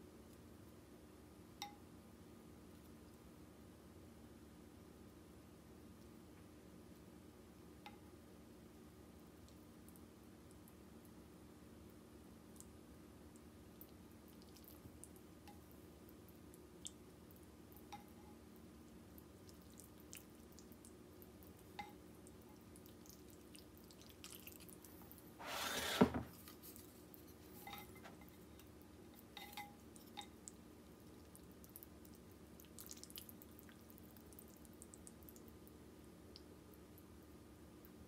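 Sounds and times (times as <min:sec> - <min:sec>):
faint water drips: 0:12.5 - 0:25.3, 0:26.7 - 0:37.2.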